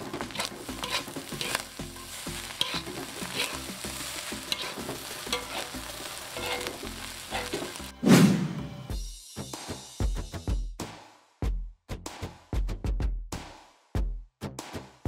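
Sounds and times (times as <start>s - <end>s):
rice sizzling in a wok: 0.0s - 8.0s
spatula scraping a wok: 0.0s - 8.0s.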